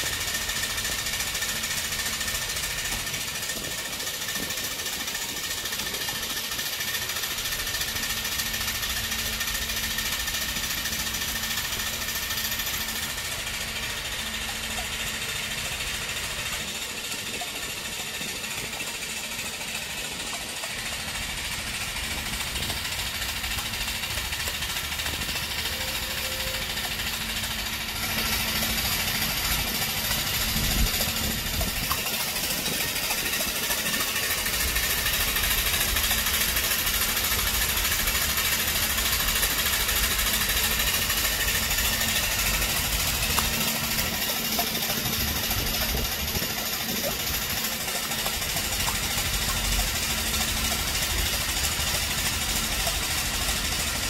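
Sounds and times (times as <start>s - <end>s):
low mechanical running noise: 0.0s - 54.0s.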